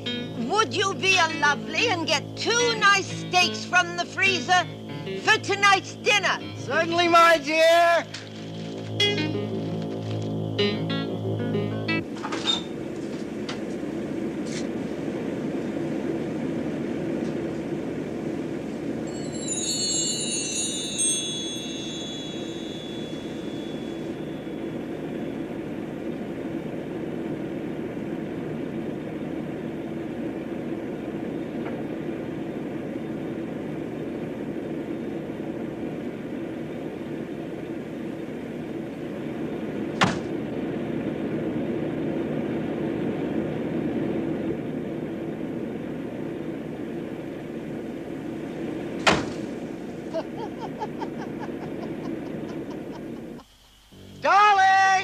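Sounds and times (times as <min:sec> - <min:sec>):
low mechanical hum: 0:00.0 - 0:55.0
chiming tone: 0:19.0 - 0:24.8.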